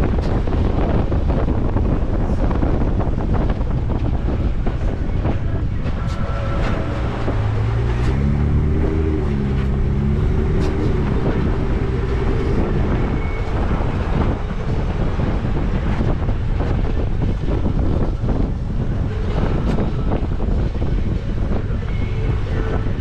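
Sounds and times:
vehicle engine and tyres rumbling: 0.0s - 23.0s
wind buffeting microphone: 0.0s - 23.0s.

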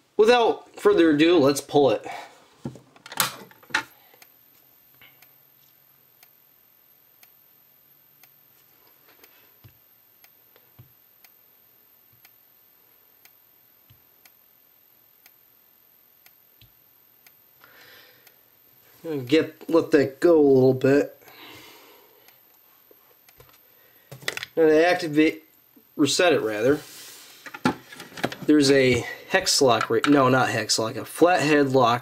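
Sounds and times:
thin high whine: 3.6s - 32.0s
strobe ticking: 3.9s - 26.8s.

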